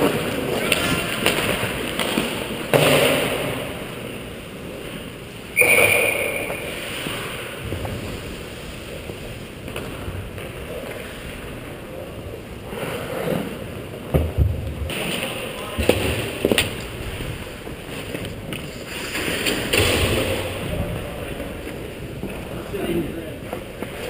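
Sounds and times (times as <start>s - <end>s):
loud sound with high tone: 5.6s - 7.6s
skate blades scraping on ice: 17.8s - 19.8s.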